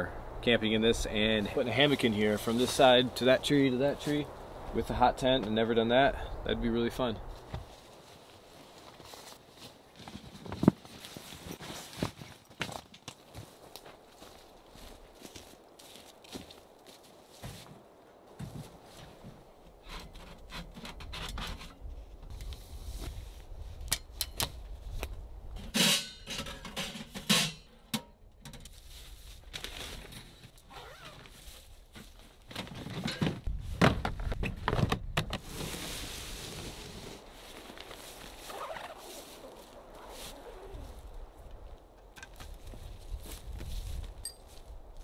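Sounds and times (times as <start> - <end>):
tent fabric rustling: 7.6 - 12.6, 28.8 - 33.6, 35.4 - 41.2.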